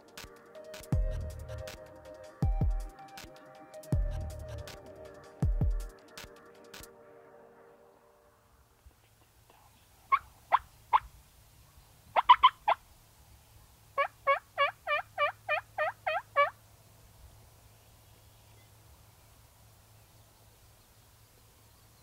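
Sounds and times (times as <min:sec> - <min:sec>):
turkey clucking and yelping: 0:10.1 - 0:11.1, 0:12.2 - 0:12.8, 0:14.0 - 0:16.6.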